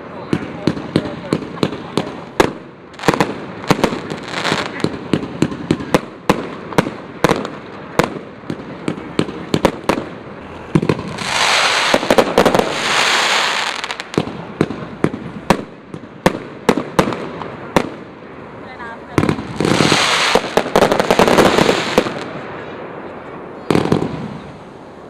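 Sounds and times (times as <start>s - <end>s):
fireworks bangs: 0.0s - 24.8s
loud hissing rush: 10.1s - 15.5s, 17.5s - 23.0s.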